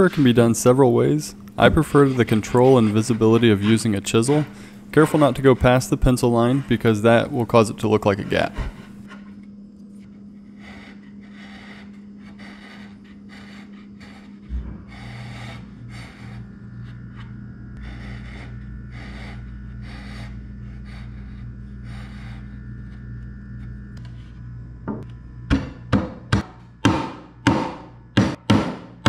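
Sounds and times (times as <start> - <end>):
chisel shaving wood: 0.0 - 9.3, 10.4 - 23.0
steady low hum: 0.0 - 29.0.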